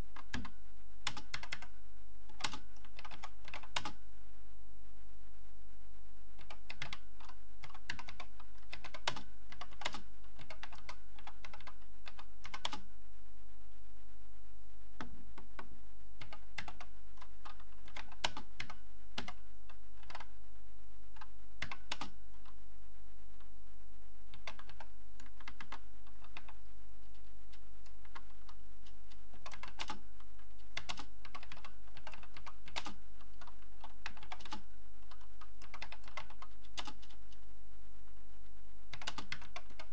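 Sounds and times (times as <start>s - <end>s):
steady low hum: 0.0s - 39.9s
keyboard keys typing: 0.1s - 1.7s, 2.3s - 4.0s, 6.4s - 12.9s, 15.0s - 20.3s, 21.2s - 22.6s, 24.3s - 37.3s, 38.9s - 39.9s.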